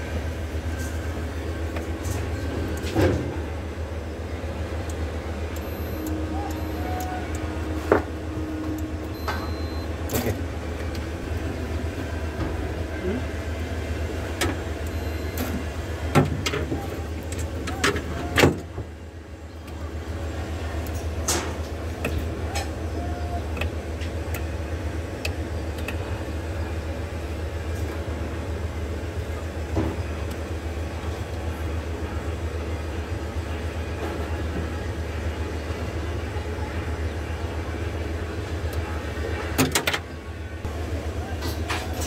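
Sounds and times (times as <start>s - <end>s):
low hum: 0.0s - 18.2s.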